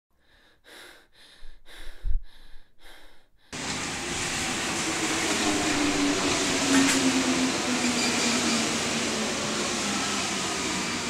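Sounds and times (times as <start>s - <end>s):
metro train running: 3.6s - 11.0s
train motor whine: 3.6s - 11.0s.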